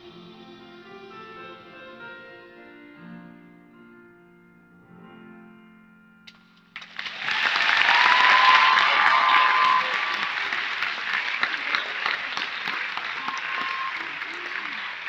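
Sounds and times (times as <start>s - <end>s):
audience applauding: 6.8s - 15.0s.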